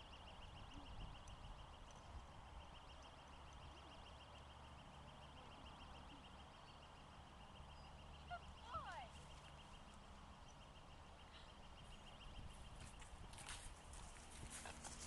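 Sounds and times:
soft rustles: 0:12.6 - 0:15.0.

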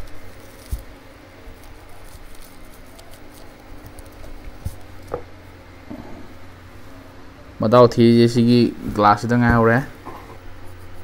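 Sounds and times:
cloth rubbing on camera: 0:00.0 - 0:05.1, 0:08.6 - 0:11.0.

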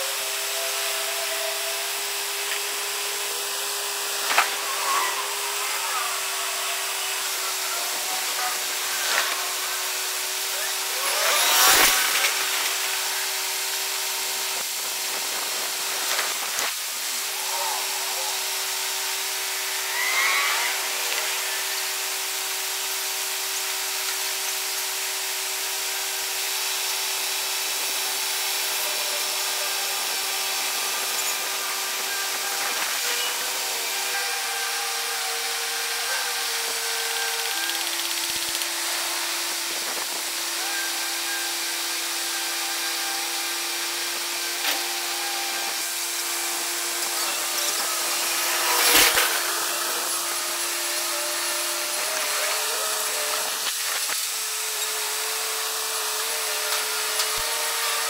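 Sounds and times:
machine humming: 0:00.0 - 0:58.0
short squeal: 0:19.5 - 0:22.0.

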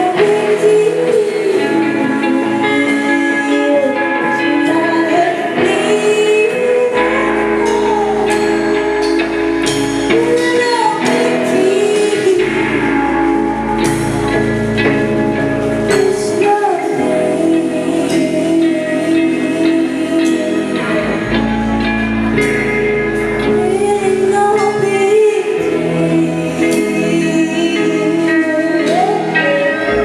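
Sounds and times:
live rock band playing: 0:00.0 - 0:30.0
woman singing: 0:00.0 - 0:30.0
deep bass: 0:17.6 - 0:24.6.

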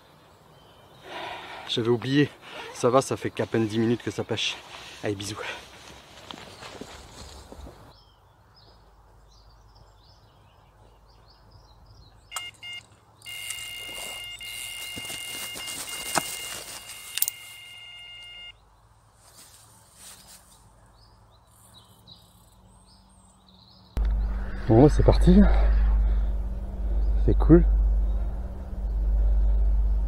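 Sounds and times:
birds chirping faintly: 0:00.0 - 0:30.0
bite alarm bleeps and tone: 0:12.3 - 0:18.6.

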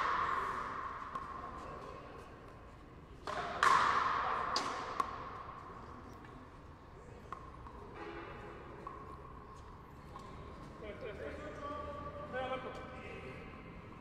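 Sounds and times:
rubber ball struck by rackets: 0:00.0 - 0:02.0, 0:03.2 - 0:05.7.

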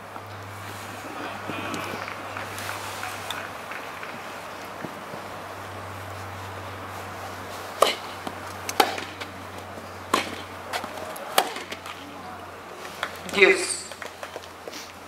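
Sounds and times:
tennis ball hit by rackets: 0:07.7 - 0:09.4, 0:10.0 - 0:12.1.

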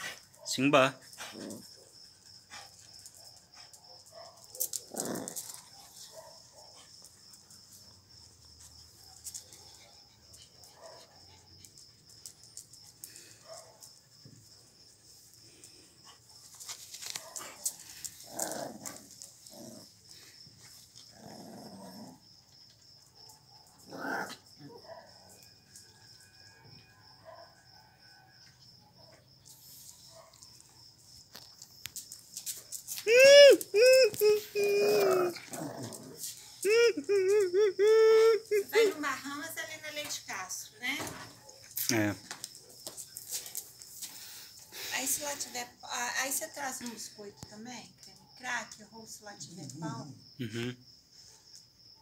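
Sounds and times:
small dogs whimpering: 0:33.2 - 0:39.0.

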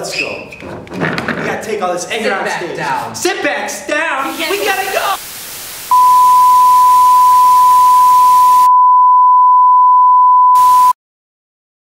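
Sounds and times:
faint hiss: 0:04.2 - 0:07.1
high test-pattern beep tone: 0:05.9 - 0:11.0.

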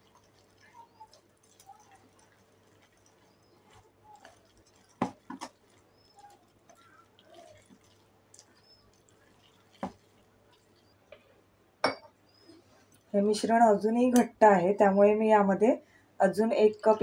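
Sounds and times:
batter stirring: 0:00.0 - 0:11.4.

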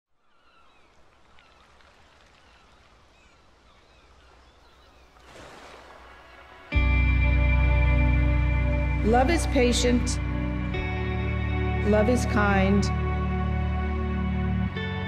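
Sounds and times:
distant bird chirps: 0:00.1 - 0:06.8
music with sustained chords: 0:06.0 - 0:15.0.

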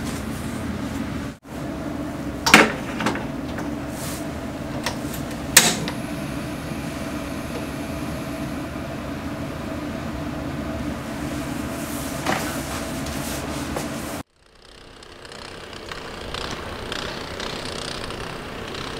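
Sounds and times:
steady hum: 0:00.0 - 0:18.9
gas stove igniter click: 0:04.8 - 0:06.0.

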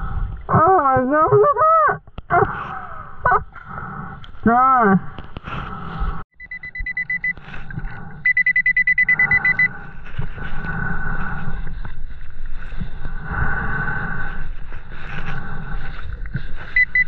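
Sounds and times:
metal detector beeping: 0:06.4 - 0:07.4, 0:08.2 - 0:09.8, 0:16.8 - 0:17.0.

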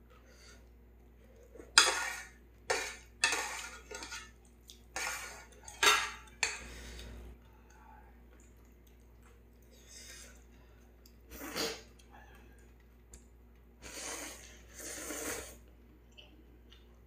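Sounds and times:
person slurping noodles: 0:11.3 - 0:11.9, 0:13.8 - 0:15.6.

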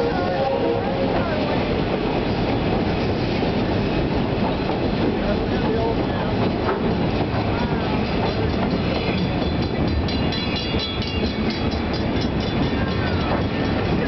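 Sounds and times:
train rumbling on track: 0:00.0 - 0:14.0.

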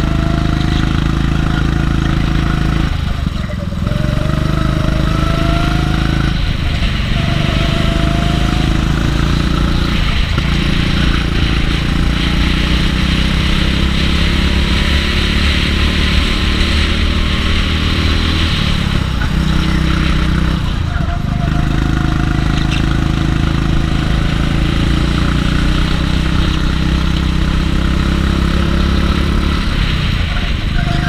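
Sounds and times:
kart engine revving: 0:00.0 - 0:31.0.

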